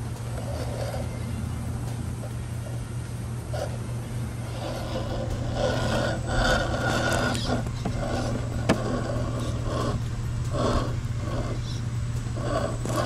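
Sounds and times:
electric motor whining: 0:00.0 - 0:13.0
tyres scrabbling on rock: 0:04.9 - 0:10.0
truck knocking on rock: 0:07.4 - 0:09.1.

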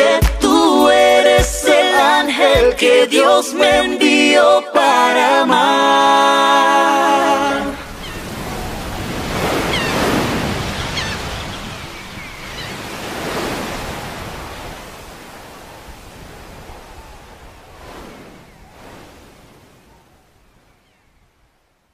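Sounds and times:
ocean waves washing: 0:06.0 - 0:21.6.

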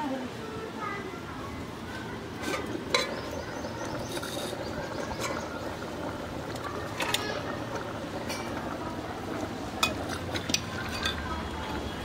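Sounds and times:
low background noise: 0:00.0 - 0:12.0
steel ladle clinking on pots: 0:02.4 - 0:05.5, 0:09.8 - 0:11.8.

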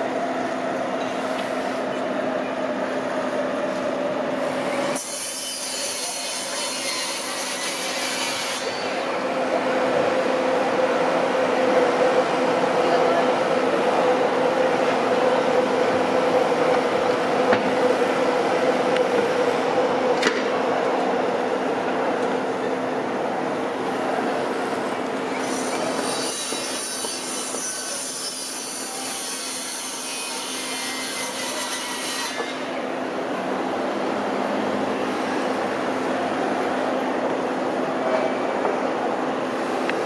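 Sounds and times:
high metallic train squeal: 0:04.4 - 0:09.2, 0:25.3 - 0:32.8.

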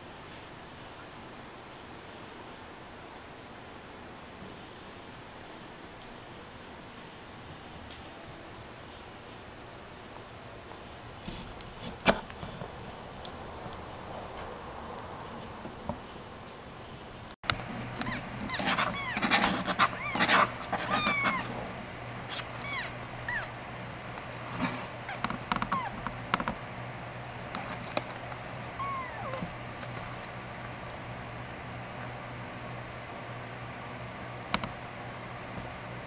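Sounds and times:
kitten mewing: 0:18.0 - 0:21.6, 0:22.3 - 0:23.6, 0:25.0 - 0:26.0, 0:28.7 - 0:29.6
scrabbling on paper pad: 0:18.0 - 0:23.5, 0:27.4 - 0:30.4.

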